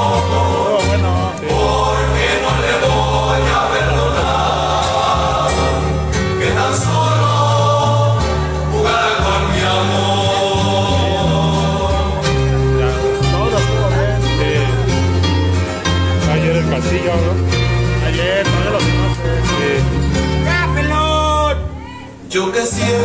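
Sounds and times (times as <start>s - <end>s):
choir singing: 0.0s - 13.8s
steady bass line: 0.0s - 21.8s.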